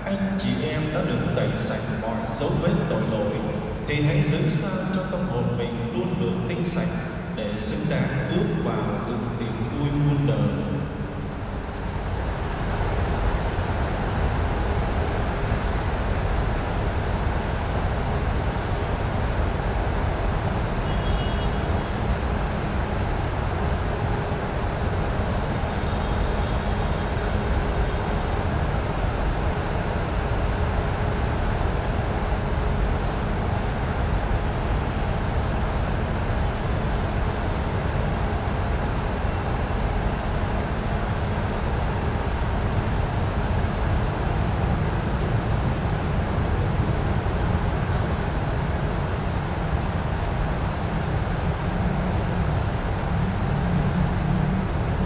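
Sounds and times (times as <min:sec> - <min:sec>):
low background rumble: 0:00.0 - 0:21.0.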